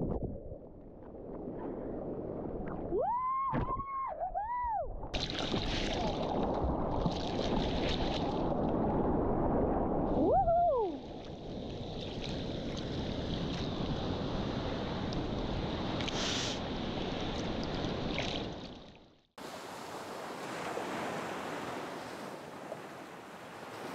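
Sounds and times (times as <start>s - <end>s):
sea surf and wind: 5.7s - 18.8s, 19.4s - 23.9s.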